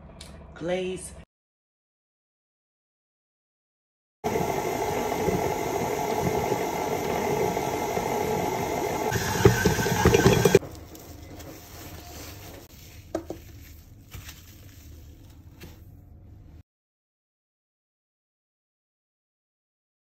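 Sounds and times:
stand mixer running: 4.2s - 10.6s
plastic wrap crinkling: 10.6s - 15.9s.

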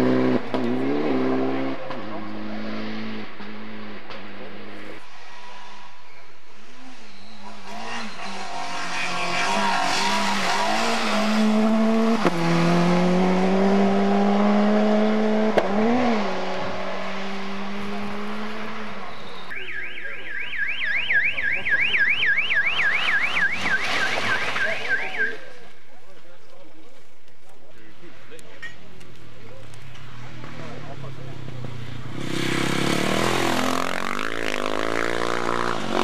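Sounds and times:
yelping siren: 19.5s - 25.4s.

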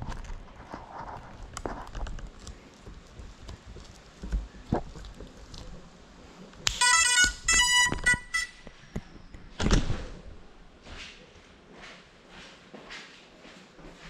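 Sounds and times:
scraping rustle: 0.0s - 8.7s.

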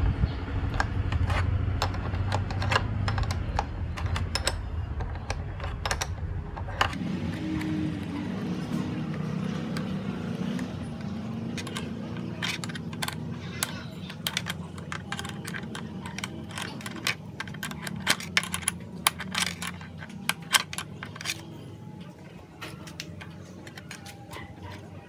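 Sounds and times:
low steady rumble: 0.0s - 24.4s.

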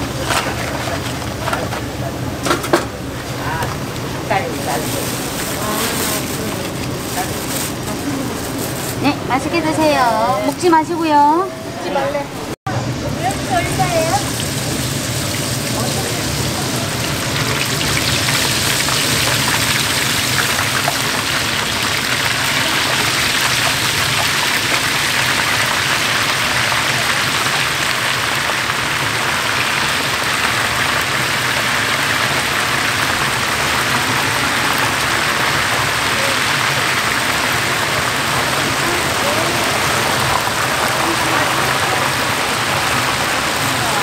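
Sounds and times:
oil sizzling and bubbling in wok: 12.7s - 44.0s.

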